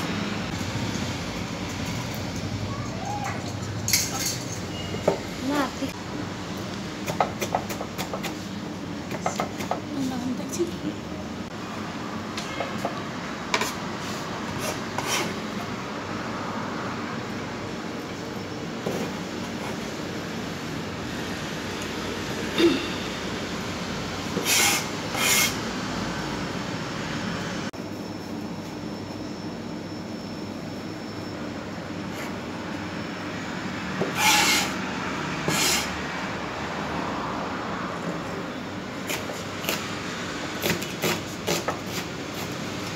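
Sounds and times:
low kitchen hum: 0:00.0 - 0:42.9
knife scraping cutting board: 0:13.6 - 0:15.4, 0:24.4 - 0:25.6, 0:34.1 - 0:34.8, 0:35.5 - 0:35.9.

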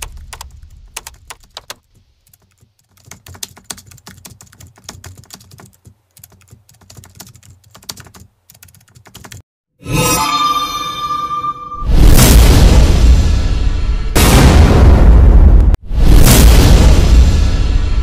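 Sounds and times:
keyboard typing clicks: 0:00.0 - 0:09.4.

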